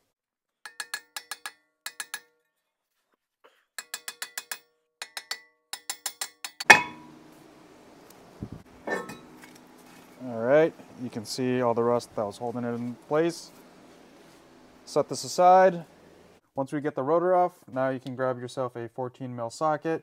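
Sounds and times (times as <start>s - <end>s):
hammer striking metal: 3.8s - 7.3s.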